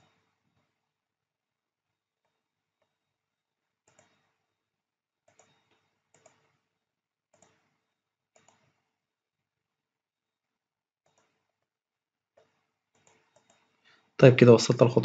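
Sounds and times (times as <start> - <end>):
computer mouse clicks: 3.8 - 4.3, 5.3 - 6.6, 7.3 - 7.7, 8.4 - 8.8, 11.0 - 11.5, 12.4 - 13.6.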